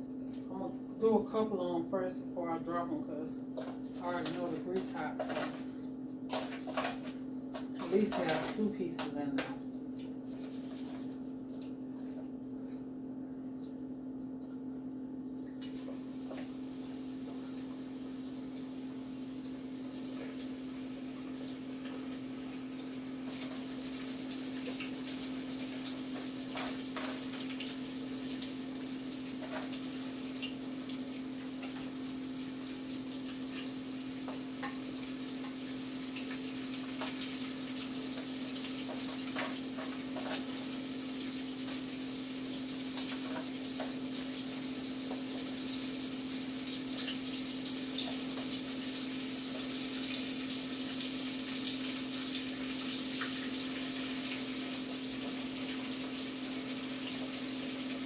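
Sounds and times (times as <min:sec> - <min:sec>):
fish sizzling in hot oil: 0:21.4 - 0:58.0.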